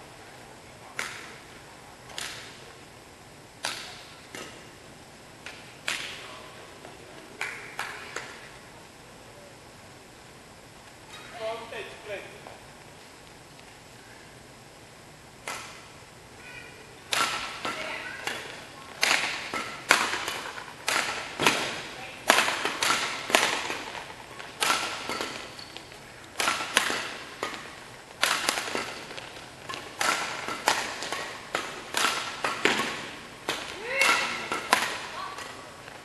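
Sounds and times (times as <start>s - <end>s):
rackets hitting shuttlecock: 0.9s - 1.4s, 2.1s - 2.6s, 3.6s - 4.7s, 5.4s - 6.3s, 15.4s - 16.0s, 17.0s - 36.0s.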